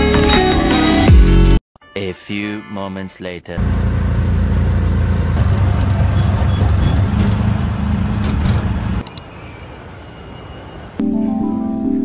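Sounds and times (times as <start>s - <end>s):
sharp clicks: 9.0s - 9.3s.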